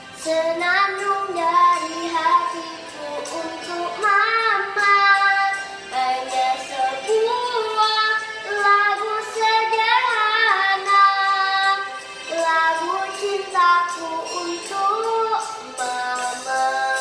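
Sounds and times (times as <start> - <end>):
girl singing: 0.0 - 17.0.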